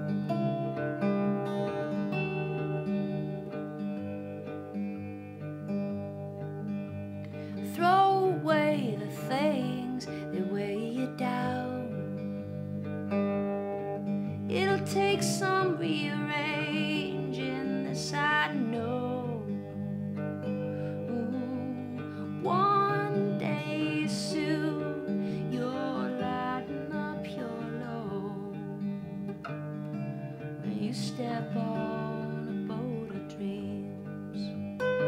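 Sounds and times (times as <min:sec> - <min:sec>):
acoustic guitar: 0:00.0 - 0:35.0
woman singing: 0:07.5 - 0:12.1, 0:14.5 - 0:19.6, 0:20.9 - 0:28.8, 0:30.6 - 0:34.6.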